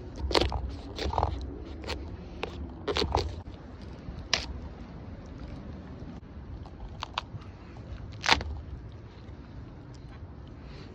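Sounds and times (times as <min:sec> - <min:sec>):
squash rind cracking: 0:00.0 - 0:04.7, 0:08.0 - 0:08.8.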